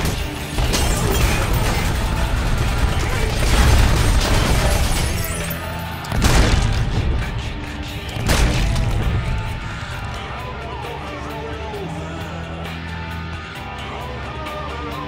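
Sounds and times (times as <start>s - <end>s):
gunfire: 0.0s - 5.3s, 6.1s - 9.5s
loud shotgun blast: 6.1s - 7.3s.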